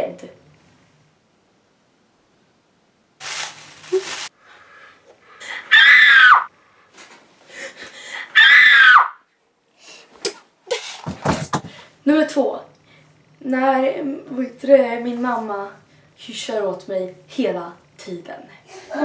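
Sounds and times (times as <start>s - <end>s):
girl screaming in fright: 5.7s - 6.5s, 8.3s - 9.2s.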